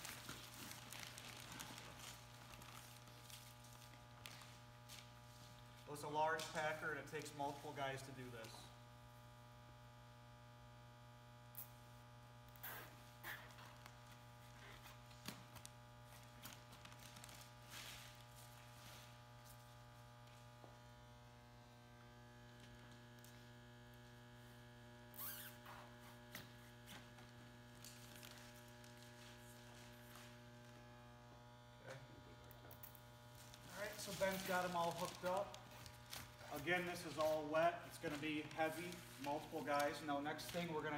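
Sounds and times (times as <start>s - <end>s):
electrical mains hum: 0.0s - 40.9s
faint rustles and clicks of zip ties: 25.1s - 30.3s.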